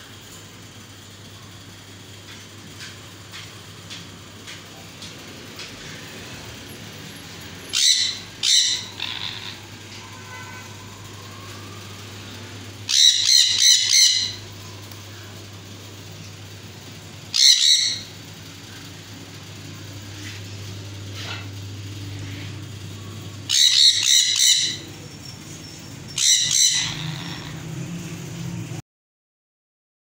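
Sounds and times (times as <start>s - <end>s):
steady low hum: 0.0s - 28.8s
parrots screeching: 7.7s - 11.8s, 12.8s - 14.5s, 17.3s - 18.2s, 23.4s - 25.1s, 25.8s - 27.7s.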